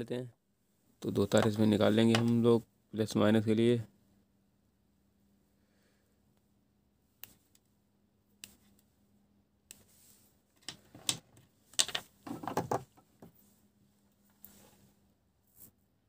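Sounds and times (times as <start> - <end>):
wires clicking and rustling: 10.5 - 13.3.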